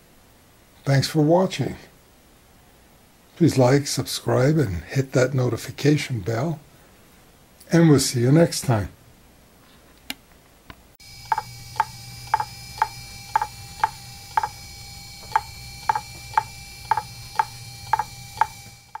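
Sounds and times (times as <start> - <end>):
faint steady whine: 10.6 - 19.0
hard drive clicking: 11.1 - 19.0.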